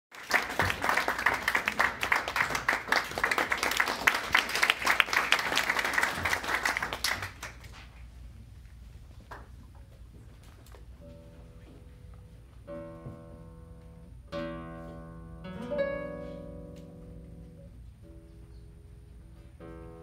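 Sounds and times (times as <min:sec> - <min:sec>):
audience applauding: 0:00.1 - 0:07.9.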